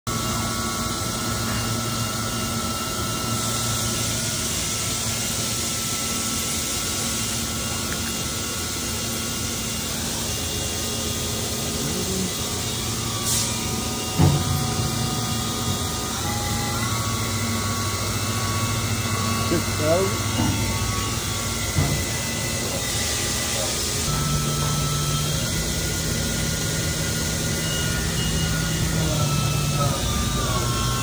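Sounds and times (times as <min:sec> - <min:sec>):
machine humming with steady tones: 0:00.1 - 0:31.0
coolant spraying hiss: 0:09.5 - 0:13.9.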